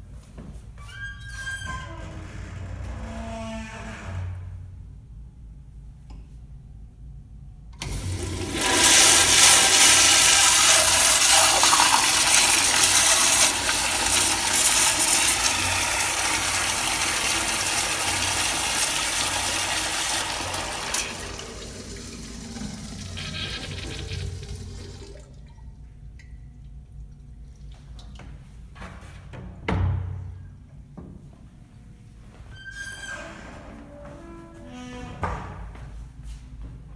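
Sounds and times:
toilet flush water rushing: 7.8s - 25.5s.

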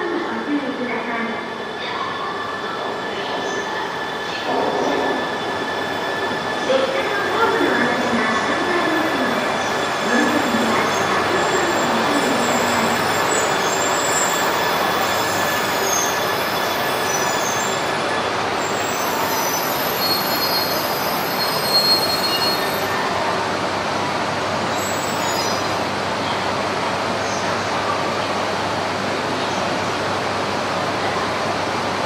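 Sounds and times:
wheel and brake squeals: 18.6s - 22.9s.

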